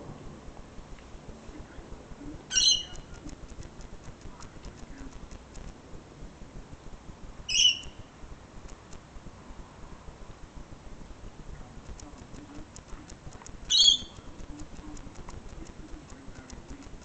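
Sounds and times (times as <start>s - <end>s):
faint clicks: 2.7s - 5.8s, 8.6s - 9.1s, 11.5s - 17.0s
parrot shrill screeches: 7.5s - 8.0s.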